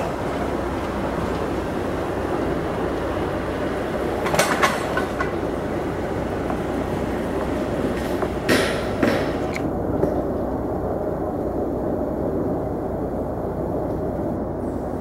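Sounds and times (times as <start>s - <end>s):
steel rails clanking: 0.0s - 10.3s
train moving with steady rumble: 0.0s - 15.0s.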